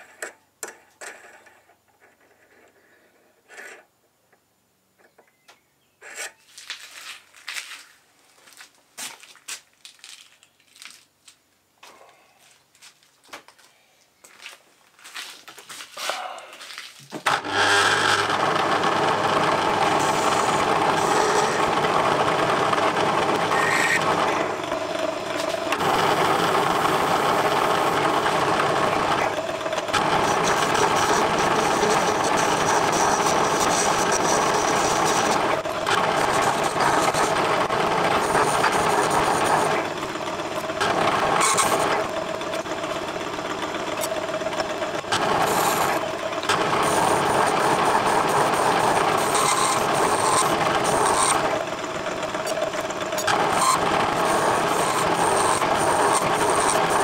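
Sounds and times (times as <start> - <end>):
metalworking lathe running: 17.2 - 57.0.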